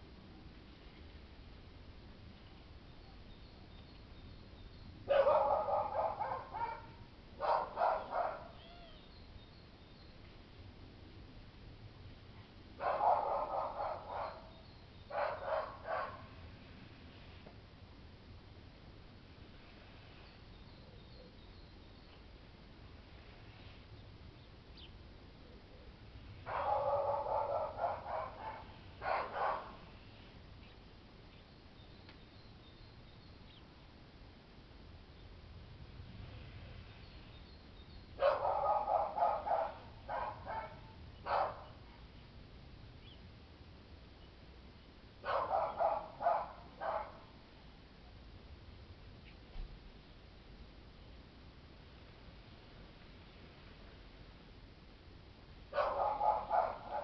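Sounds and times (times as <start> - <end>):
dog barking: 5.1 - 8.6, 12.8 - 16.3, 26.4 - 29.8, 38.2 - 41.8, 45.2 - 47.3, 55.8 - 57.0.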